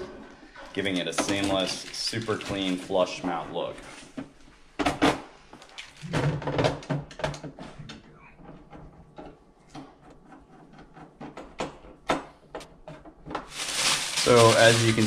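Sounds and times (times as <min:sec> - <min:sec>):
hands handling plastic wrap: 0:00.8 - 0:03.4, 0:13.3 - 0:15.0.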